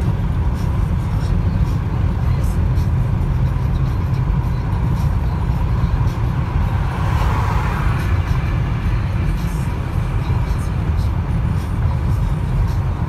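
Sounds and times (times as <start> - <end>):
car road rumble from inside: 0.0 - 13.0
car passing close: 6.1 - 10.9.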